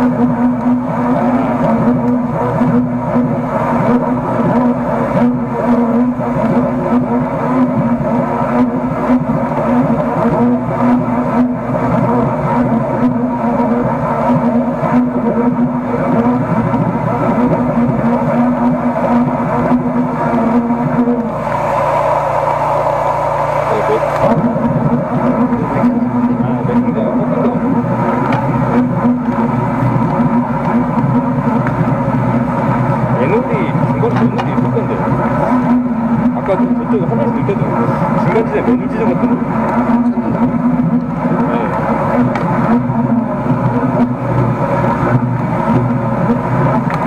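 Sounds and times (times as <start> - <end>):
drain jetter engine running: 0.0 - 47.0.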